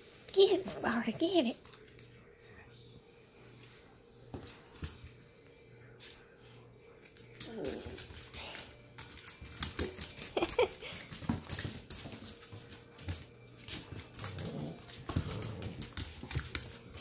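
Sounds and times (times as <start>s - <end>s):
dog claws clicking and scuffling: 7.0s - 17.0s.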